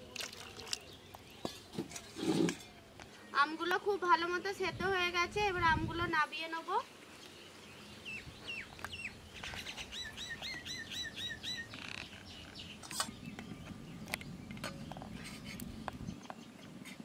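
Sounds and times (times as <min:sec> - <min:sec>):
small bird whistling: 0:08.1 - 0:12.7.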